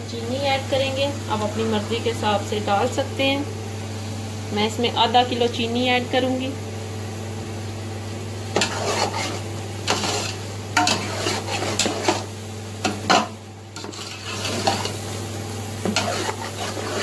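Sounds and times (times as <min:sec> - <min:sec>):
steady low hum: 0:00.0 - 0:17.0
metal spoon scraping a metal pot: 0:08.6 - 0:12.2, 0:13.8 - 0:14.9, 0:15.9 - 0:17.0.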